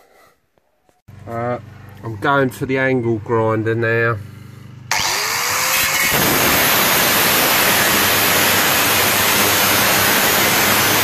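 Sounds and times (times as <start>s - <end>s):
angle grinder cutting sheet steel: 4.9s - 11.0s.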